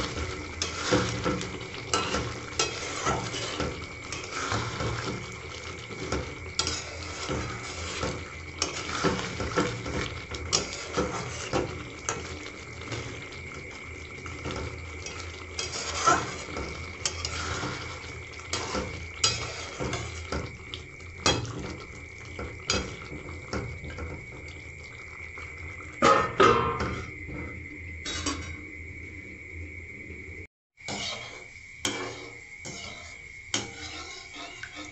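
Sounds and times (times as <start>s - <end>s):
gravy sizzling: 0.0s - 34.9s
spatula scraping metal pan: 0.5s - 12.3s, 15.0s - 20.4s, 28.0s - 28.6s, 30.9s - 34.9s.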